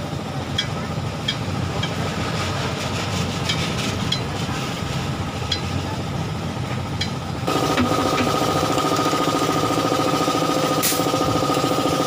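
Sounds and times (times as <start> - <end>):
shop machinery running: 0.0 - 12.0
short hiss of air: 10.8 - 11.1.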